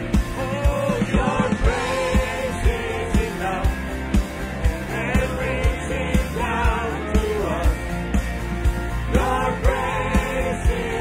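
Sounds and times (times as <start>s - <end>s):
steady drum beat: 0.0s - 11.0s
worship band playing: 0.0s - 11.0s
man singing lead: 0.2s - 3.9s, 4.8s - 7.9s
backing singers: 0.3s - 8.2s, 8.9s - 11.0s.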